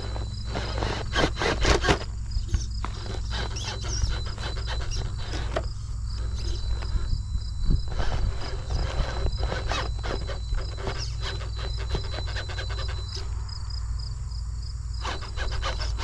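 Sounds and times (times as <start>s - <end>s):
tyres clicking and scraping on rocks: 0.0s - 7.1s, 7.9s - 13.4s, 15.0s - 16.0s
insects chirping: 0.0s - 16.0s
thin high whine: 0.0s - 16.0s
steady low rumble: 2.0s - 3.3s, 4.0s - 10.8s.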